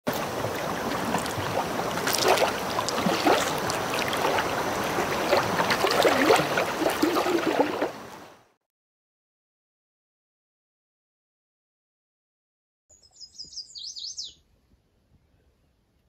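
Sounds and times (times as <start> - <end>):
water lapping and splashing: 0.1 - 8.5
water rushing: 0.1 - 8.5.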